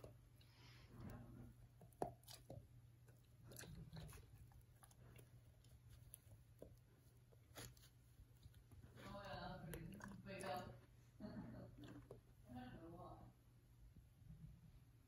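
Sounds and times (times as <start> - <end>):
dog chewing feather: 0.0 - 10.7.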